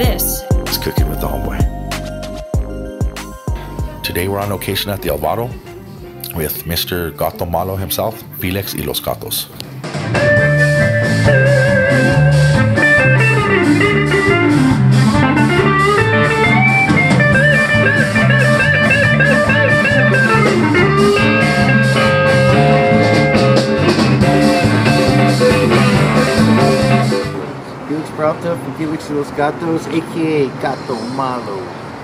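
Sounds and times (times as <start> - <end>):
electric guitar lead: 9.6 - 27.6
blues-rock band playing: 9.7 - 27.4.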